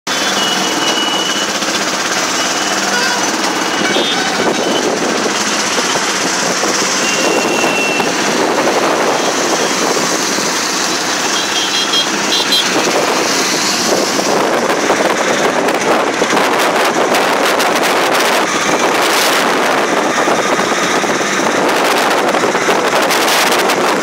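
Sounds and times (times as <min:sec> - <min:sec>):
small engine running: 0:00.1 - 0:23.7
road and wind noise: 0:00.1 - 0:24.0.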